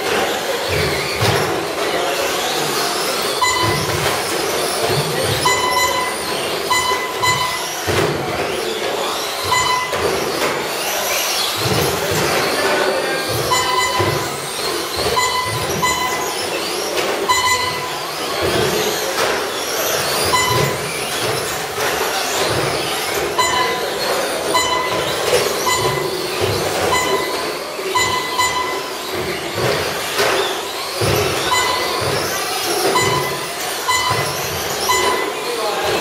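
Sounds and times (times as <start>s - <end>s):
rc truck motors whirring: 0.0s - 36.0s
rc trucks knocking on boards: 0.0s - 36.0s
short beeps: 3.2s - 8.0s, 9.4s - 10.2s, 13.2s - 18.8s, 20.2s - 21.3s, 23.2s - 30.4s, 31.0s - 36.0s.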